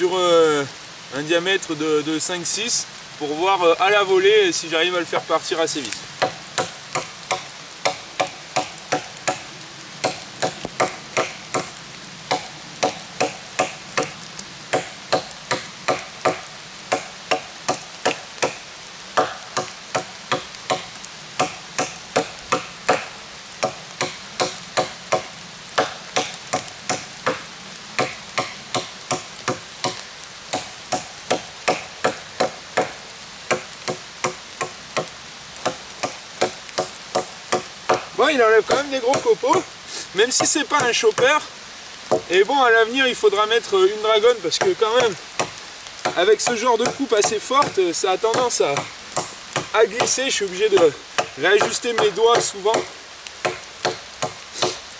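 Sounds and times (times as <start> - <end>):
knife chopping into branch: 51.2 - 54.8.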